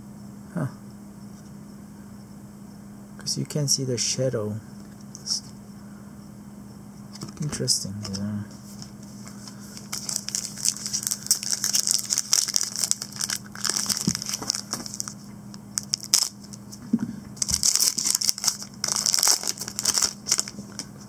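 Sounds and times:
faint steady hum: 0.0 - 21.0
foil wrapper crinkling: 8.8 - 16.7, 17.4 - 21.0.

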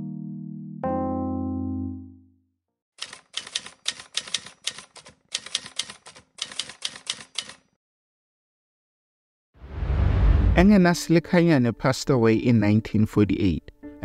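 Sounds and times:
held keyboard chord: 0.0 - 2.4
typewriter keystrokes clacking: 3.0 - 7.7.

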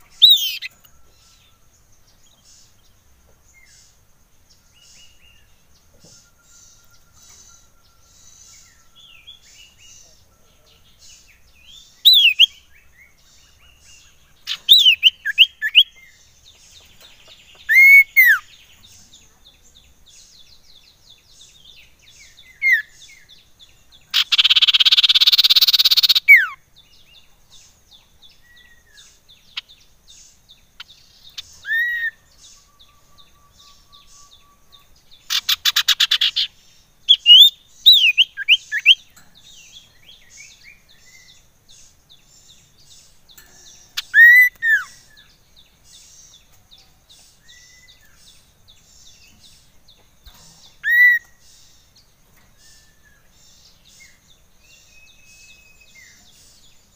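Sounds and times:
faint high chirping: 0.0 - 56.9
bird harsh churr: 24.1 - 26.6, 44.0 - 45.0.

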